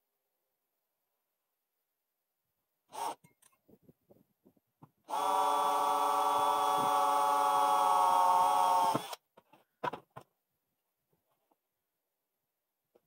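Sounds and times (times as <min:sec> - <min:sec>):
cordless drill boring metal: 0:02.9 - 0:03.5, 0:05.1 - 0:09.2.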